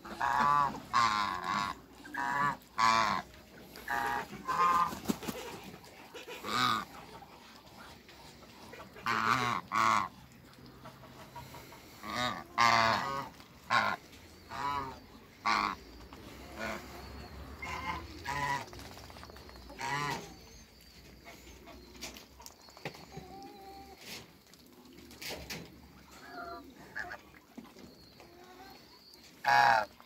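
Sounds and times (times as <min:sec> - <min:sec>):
geese honking: 0:00.0 - 0:05.1, 0:06.1 - 0:07.5, 0:08.3 - 0:18.7, 0:19.7 - 0:20.4, 0:29.4 - 0:30.0.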